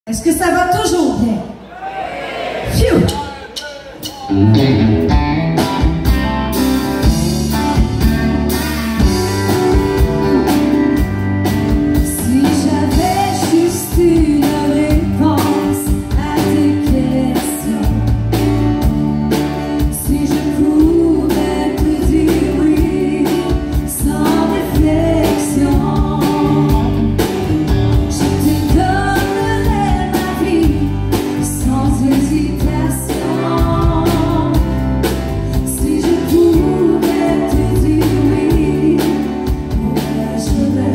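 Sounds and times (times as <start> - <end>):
drum kit beat: 2.8 - 40.9
guitar: 4.0 - 40.9
woman singing: 12.0 - 18.4, 19.8 - 34.8, 35.5 - 40.9.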